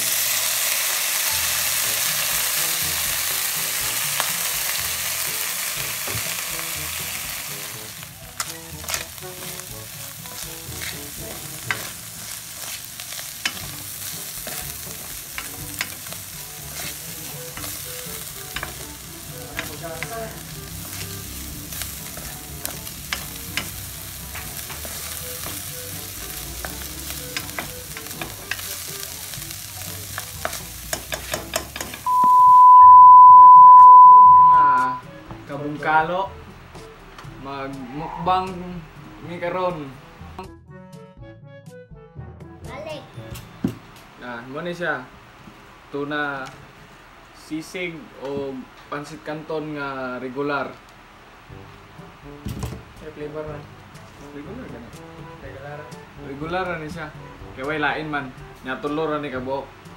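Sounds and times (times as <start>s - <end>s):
fish sizzling in hot oil: 0.0s - 32.1s
spatula tapping and scraping pan: 10.7s - 12.0s, 13.4s - 13.8s, 14.4s - 16.2s, 18.5s - 18.9s, 26.6s - 28.7s, 30.1s - 32.0s.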